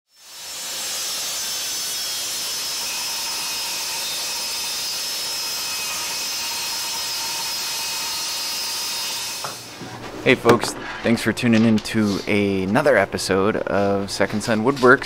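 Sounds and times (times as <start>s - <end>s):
table saw cutting wood: 0.1s - 9.7s.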